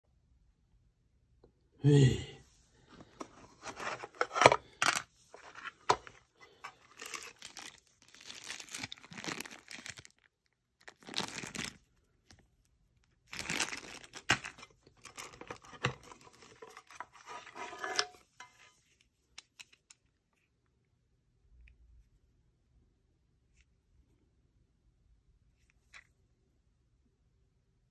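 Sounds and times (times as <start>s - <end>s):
plastic bag crinkling: 3.6s - 11.9s, 13.2s - 18.1s.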